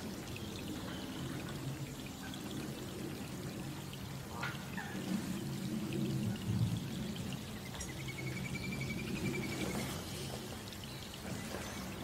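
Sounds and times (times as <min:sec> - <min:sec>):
rain falling on pond water: 0:00.0 - 0:12.0.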